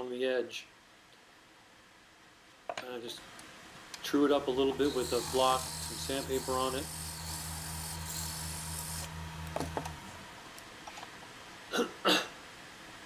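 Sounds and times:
lathe motor humming: 0:04.4 - 0:10.3
sandpaper rubbing wood: 0:04.6 - 0:09.2.

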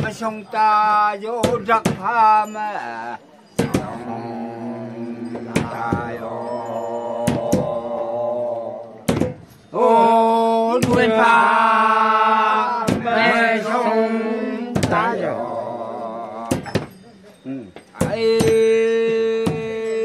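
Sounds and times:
men chanting together: 0:02.8 - 0:16.9.

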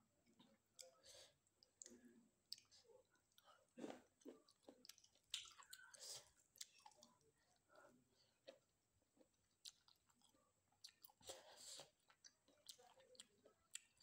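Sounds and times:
close chewing with mouth clicks: 0:00.4 - 0:07.7, 0:08.4 - 0:14.0
noisy chewing: 0:09.3 - 0:14.0.

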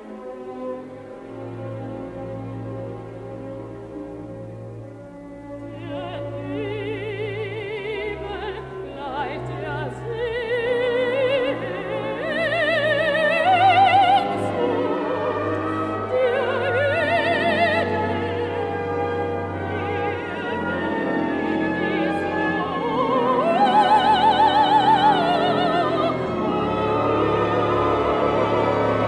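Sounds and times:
orchestra sustained low notes: 0:00.0 - 0:29.0
woman singing with vibrato: 0:05.7 - 0:18.7, 0:19.6 - 0:27.1.

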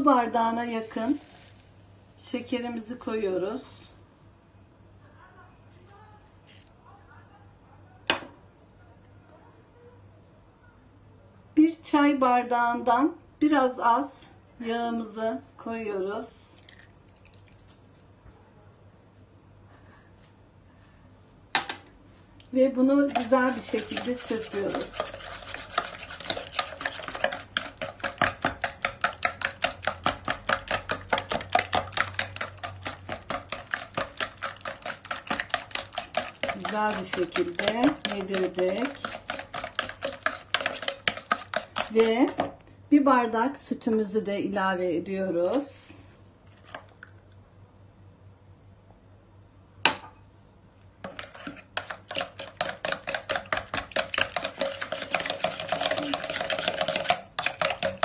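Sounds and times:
whisk clicking against bowl: 0:23.0 - 0:42.6, 0:51.0 - 0:58.0.

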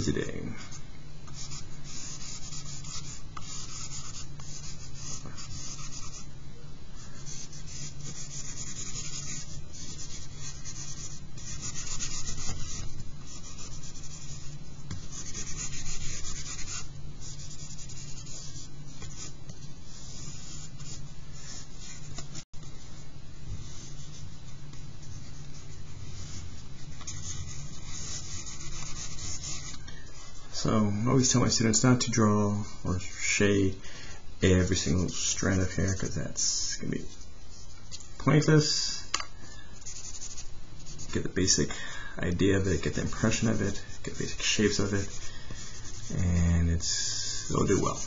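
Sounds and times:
steady low hum: 0:00.0 - 0:48.0
charcoal scraping on paper: 0:07.1 - 0:22.3, 0:42.8 - 0:48.0.

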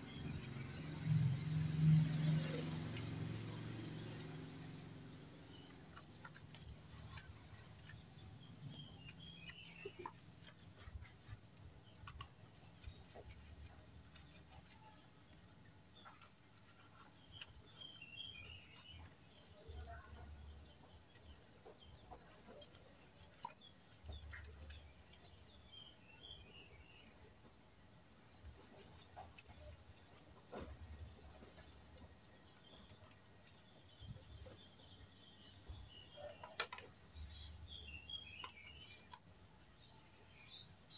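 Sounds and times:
small birds chirping: 0:00.0 - 0:40.9
wet cloth scrubbing plastic: 0:00.1 - 0:25.8.

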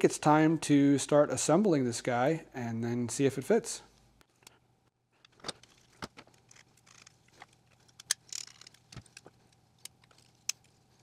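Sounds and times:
plastic parts clicking and rattling: 0:05.2 - 0:10.8.

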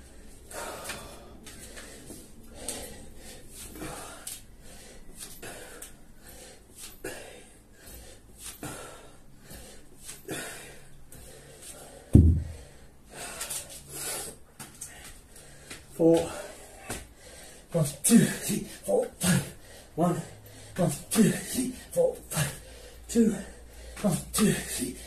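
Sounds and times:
hard breathing with forceful exhales: 0:00.1 - 0:25.0
kettlebell thud on floor: 0:12.2 - 0:12.6.

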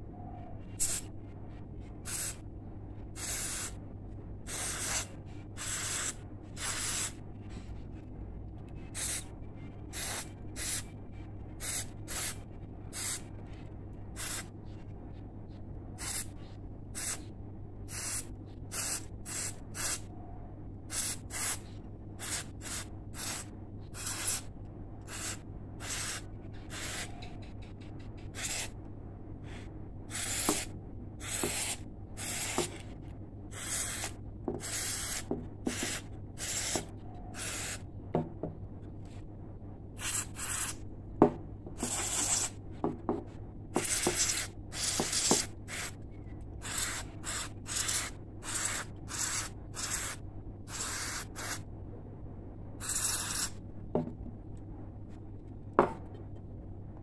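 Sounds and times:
steady low hum: 0:00.0 - 0:57.0
aerosol can spraying: 0:22.2 - 0:24.4, 0:25.1 - 0:27.2, 0:33.6 - 0:36.8, 0:43.8 - 0:45.9, 0:46.6 - 0:51.6, 0:52.8 - 0:53.5.

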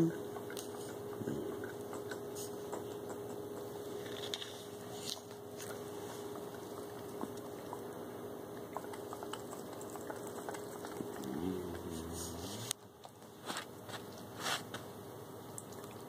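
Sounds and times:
faint steady hum: 0:00.0 - 0:16.0
dog licking fur: 0:08.6 - 0:14.5.

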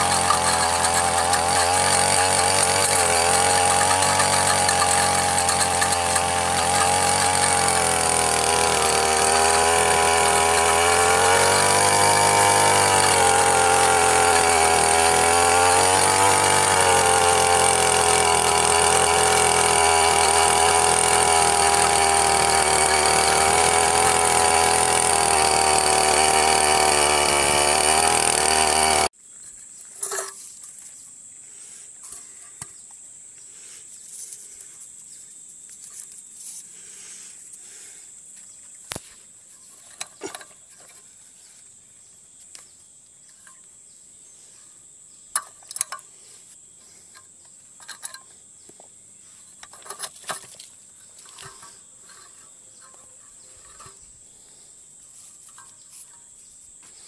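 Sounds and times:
brush cutter engine running: 0:00.0 - 0:29.1
tiller churning soil: 0:00.0 - 0:29.2, 0:49.6 - 0:54.6.

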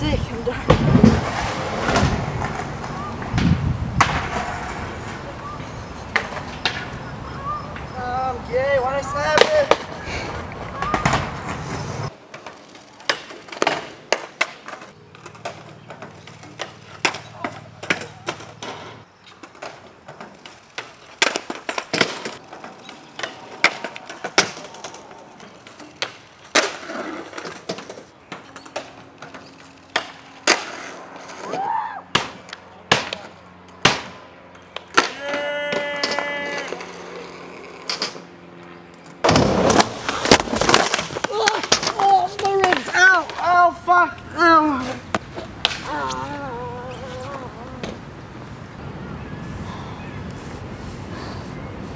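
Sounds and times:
skateboard wheels rolling: 0:00.0 - 0:49.6
skateboard clacks: 0:00.6 - 0:05.3, 0:06.1 - 0:07.9, 0:09.0 - 0:31.5, 0:32.1 - 0:38.3, 0:39.2 - 0:44.2, 0:44.8 - 0:46.2.

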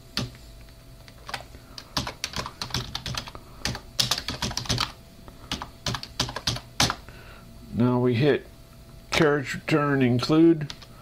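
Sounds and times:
computer keyboard typing: 0:01.1 - 0:07.0.

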